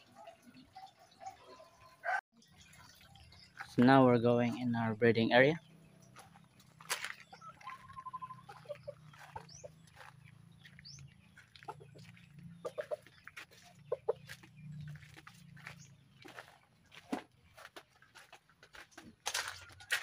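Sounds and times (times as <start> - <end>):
footsteps crunching on gravel: 5.9 - 20.0
chickens clucking: 6.0 - 20.0.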